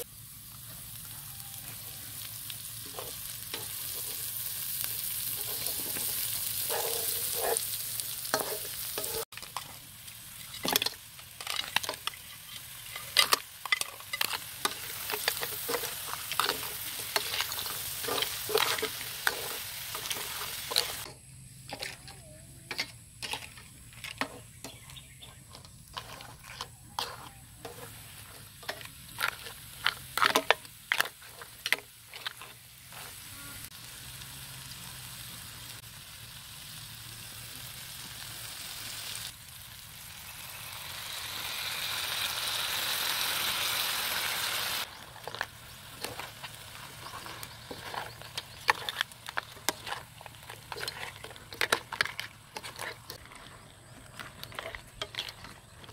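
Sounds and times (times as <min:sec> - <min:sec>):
food sizzling in wok: 0:00.0 - 0:22.0, 0:22.7 - 0:55.9
utensil scraping and knocking wok: 0:00.0 - 0:33.8, 0:44.8 - 0:55.9.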